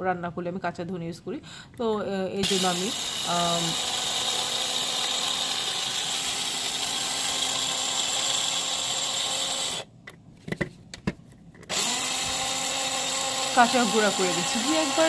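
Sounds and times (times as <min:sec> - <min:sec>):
electric spice grinder running: 0:02.4 - 0:09.9, 0:11.7 - 0:15.0.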